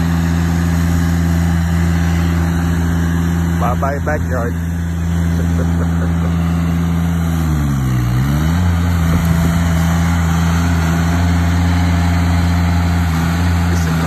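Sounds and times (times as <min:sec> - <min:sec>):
tracked machine engine running: 0:00.0 - 0:14.0.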